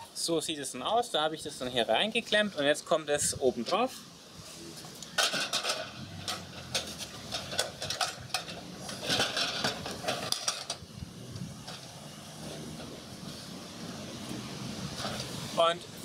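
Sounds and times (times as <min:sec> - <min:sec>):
metal cans clanking and scraping: 0:05.1 - 0:10.8.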